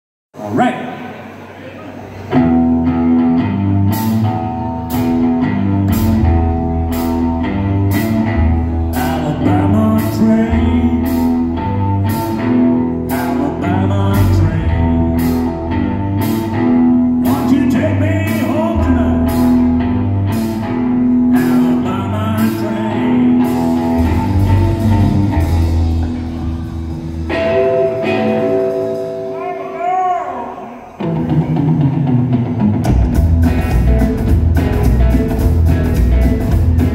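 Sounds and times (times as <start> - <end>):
electric guitar: 1.5 - 36.9
upright double bass: 2.4 - 27.3, 32.9 - 36.9
drum kit beat: 23.4 - 29.9, 31.0 - 36.9.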